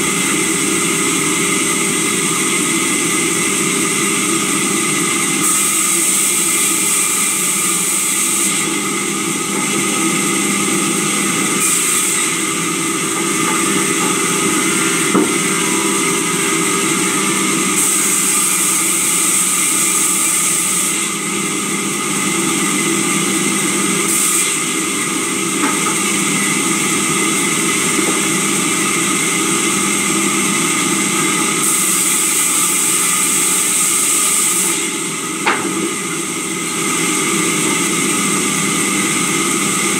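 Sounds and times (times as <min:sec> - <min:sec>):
sawmill saw cutting wood: 0:00.0 - 0:39.9
single knock: 0:15.2 - 0:15.4.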